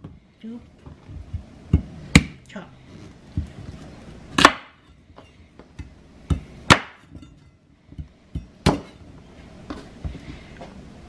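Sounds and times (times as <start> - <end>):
knife chopping on wooden board: 4.4 - 4.8, 5.8 - 7.1.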